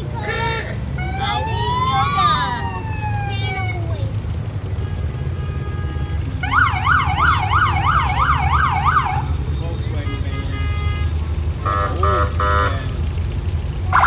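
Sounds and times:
vehicle engines rumbling: 0.0 - 14.0
siren yelping: 0.2 - 4.0, 6.4 - 9.4.

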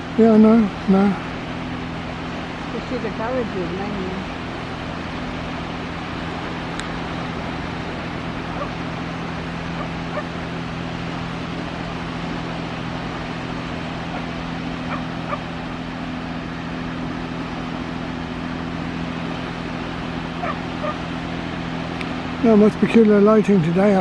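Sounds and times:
low even hum: 0.0 - 24.0.

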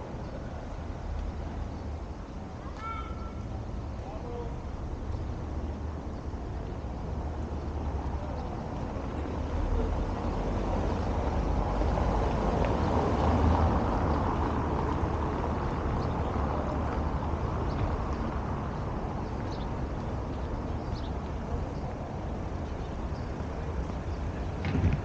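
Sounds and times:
wind on the microphone: 23.8 - 25.0.

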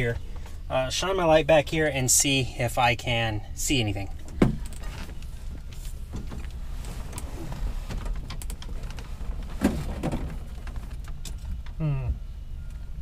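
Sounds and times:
low hum: 0.0 - 13.0
rustling and small knocks: 4.2 - 11.8.

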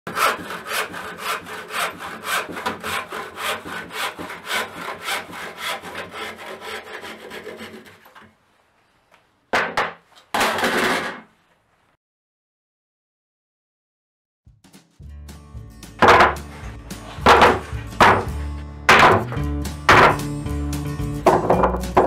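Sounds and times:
hand saw cutting board: 0.1 - 8.3, 16.0 - 20.4.

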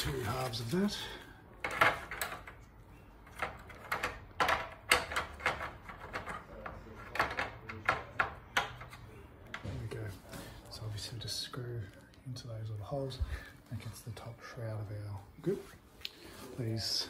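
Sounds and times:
plastic parts clicking and knocking: 1.6 - 9.8.

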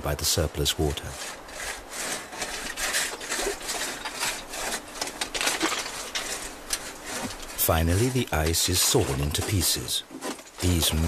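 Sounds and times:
hand saw rasping through ice: 0.9 - 11.0.

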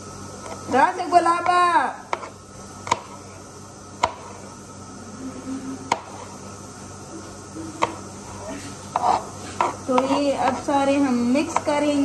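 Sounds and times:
low steady hum: 0.0 - 12.0
knife hitting cutting board: 4.0 - 4.2.

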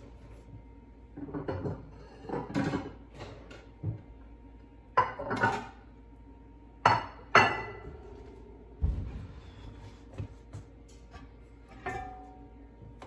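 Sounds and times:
ceramic plates clattering: 1.2 - 3.5, 6.9 - 7.8.

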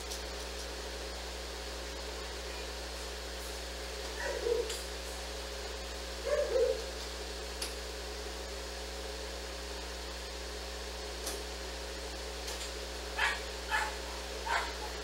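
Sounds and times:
steady background hum: 0.0 - 15.0
dog barking: 4.1 - 4.8, 6.2 - 6.9, 13.2 - 15.0.

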